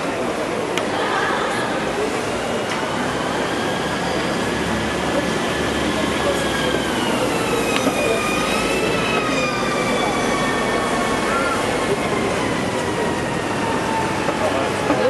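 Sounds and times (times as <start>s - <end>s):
background din of busy place: 0.0s - 15.0s.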